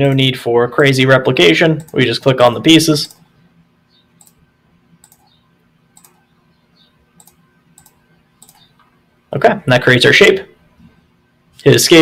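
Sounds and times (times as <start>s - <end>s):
low steady hum: 0.0s - 12.0s
faint mouse clicks: 5.0s - 5.4s, 6.0s - 6.2s, 7.2s - 8.9s.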